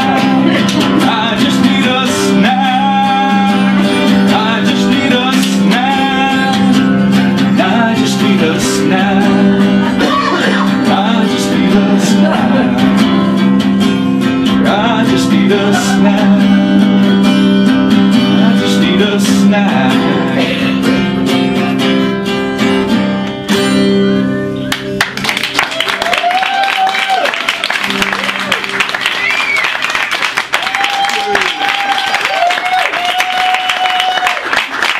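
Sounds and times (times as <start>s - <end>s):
strummed guitar: 0.0s - 25.6s, 27.7s - 29.6s.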